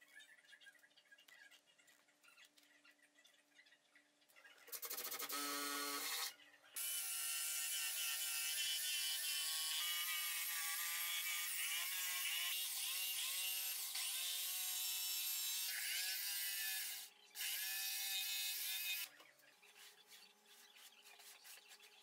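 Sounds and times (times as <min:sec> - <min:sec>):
jigsaw cutting wood: 0:04.8 - 0:19.1.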